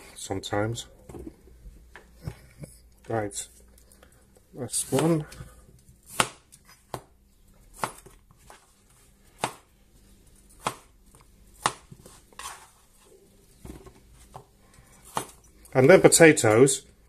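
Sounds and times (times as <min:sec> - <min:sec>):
knife chopping on cutting board: 0:06.1 - 0:07.1, 0:07.7 - 0:08.6, 0:09.4 - 0:09.7, 0:10.6 - 0:10.9, 0:11.6 - 0:12.6.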